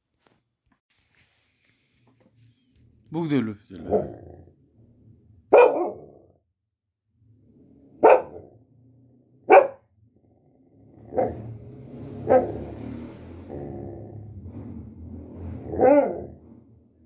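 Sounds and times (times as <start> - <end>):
dog barking: 3.8 - 4.2, 5.5 - 6.2, 8.0 - 8.5, 9.5 - 9.9.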